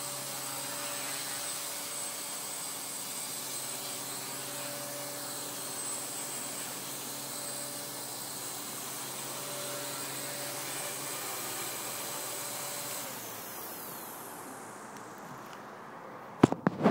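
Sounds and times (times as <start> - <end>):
electric motor whine: 0.0 - 15.7
helicopter rotor whirring: 1.9 - 14.9.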